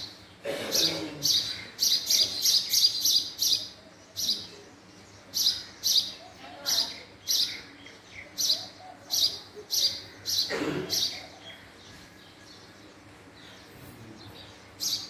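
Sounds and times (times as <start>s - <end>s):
low noisy sound: 0.0s - 15.0s
sparrow chirping: 0.0s - 15.0s.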